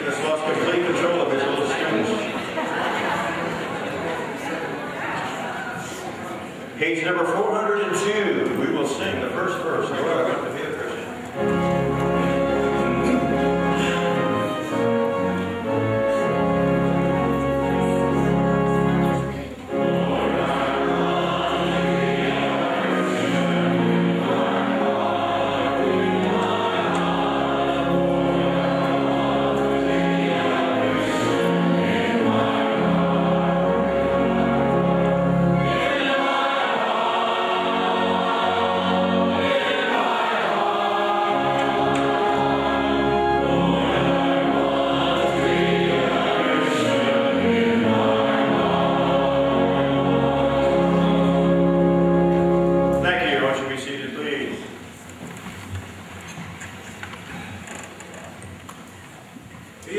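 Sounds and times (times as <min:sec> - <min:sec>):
congregation and choir singing hymn: 0:00.0 - 0:06.2, 0:06.8 - 0:54.8
organ bass notes: 0:11.4 - 0:53.7.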